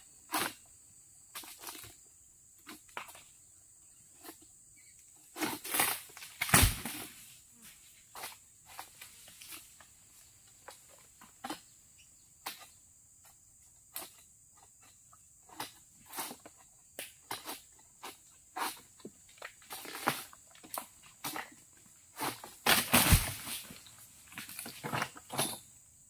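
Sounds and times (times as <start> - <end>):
sickle cracking and scraping fronds: 5.0 - 11.7, 15.5 - 25.6.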